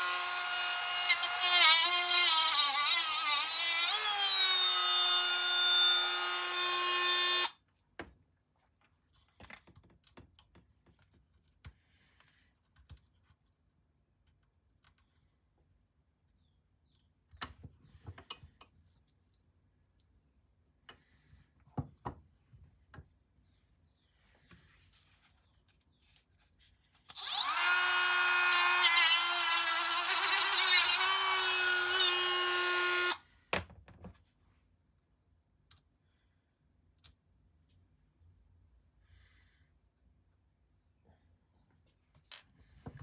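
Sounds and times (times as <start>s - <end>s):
rotary tool cutting plastic: 27.1s - 33.2s.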